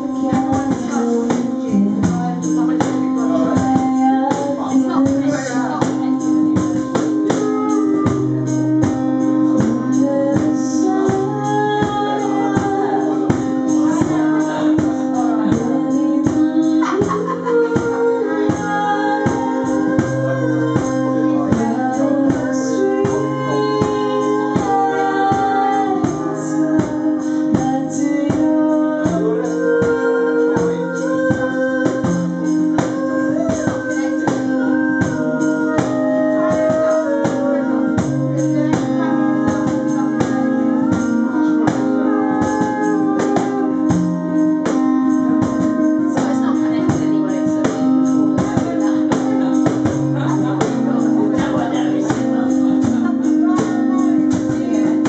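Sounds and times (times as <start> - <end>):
melody: 0.0 - 55.0
percussion beat: 0.0 - 55.0
strummed acoustic guitar: 0.0 - 55.0.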